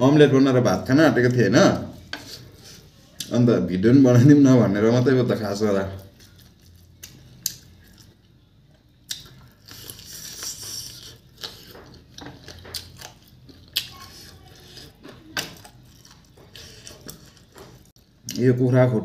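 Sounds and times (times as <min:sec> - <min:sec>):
person chewing crunchy food: 0:05.9 - 0:18.4.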